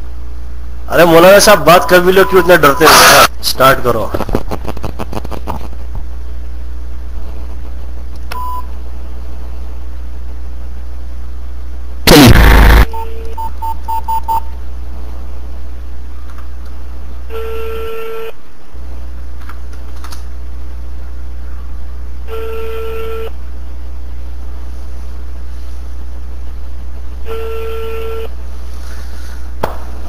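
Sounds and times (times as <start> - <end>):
steady low hum: 0.0 - 30.0
phone keypad beeps: 12.9 - 14.5.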